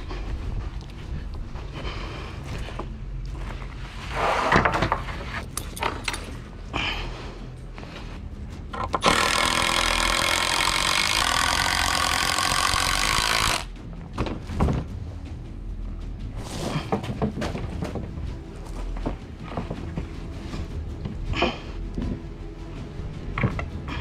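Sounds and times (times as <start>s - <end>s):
electric saw cutting wood: 8.9s - 13.8s
boards knocking and clattering: 16.8s - 18.3s.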